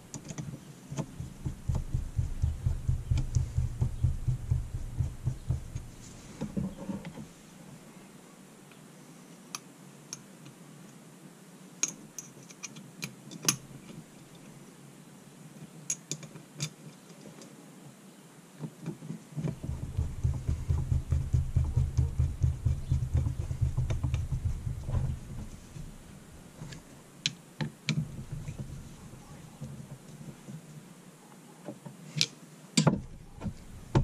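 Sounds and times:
low fluttering handling rumble: 1.0 - 7.1, 19.5 - 27.0, 28.0 - 29.6, 33.0 - 34.0.

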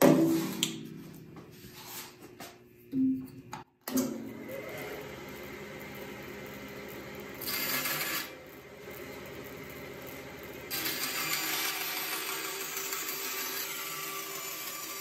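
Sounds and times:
bandsaw running: 6.9 - 15.0
saw blade cutting wood: 7.4 - 8.4, 10.7 - 15.0.

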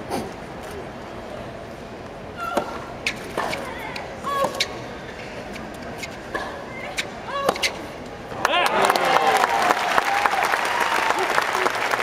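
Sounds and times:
shoes squeaking on court: 2.4 - 7.9.

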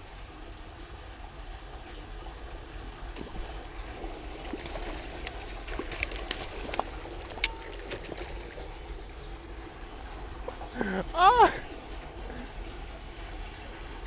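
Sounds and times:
low outdoor rumble: 0.0 - 14.0
fishing reel clicks and rustles: 4.5 - 8.4.

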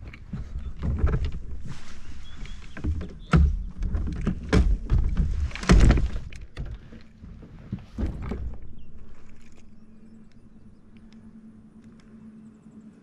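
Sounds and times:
gear knocking on plastic hull: 2.5 - 8.7.

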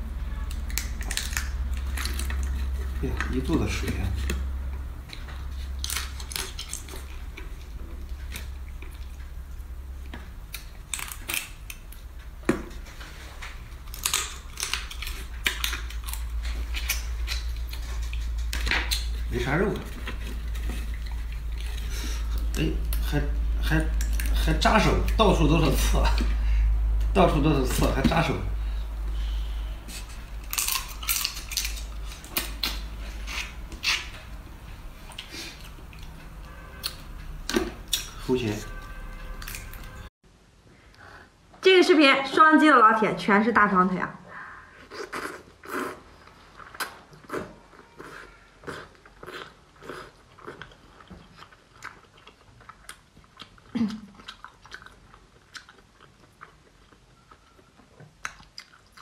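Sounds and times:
crab shell cracking: 10.5 - 12.1.

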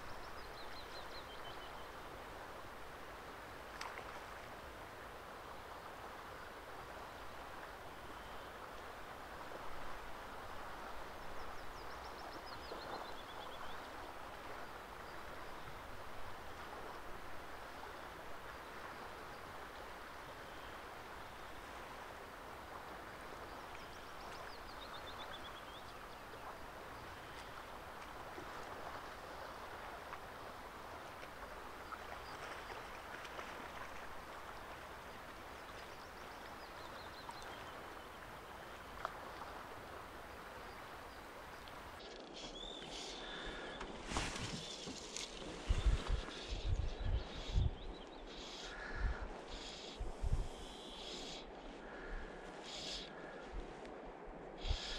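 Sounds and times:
songbird singing: 0.0 - 2.3, 11.0 - 14.1, 23.3 - 28.2, 34.4 - 53.4.

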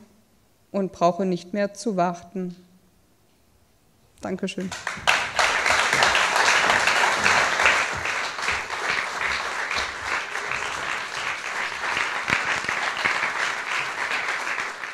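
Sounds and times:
audience applauding: 4.6 - 14.9.

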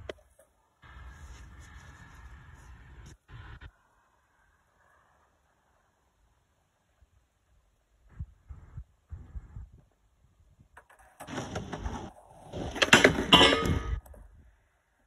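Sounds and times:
skateboard rolling on wooden boards: 10.7 - 14.2
wheels clacking over plank joints: 10.8 - 14.0.

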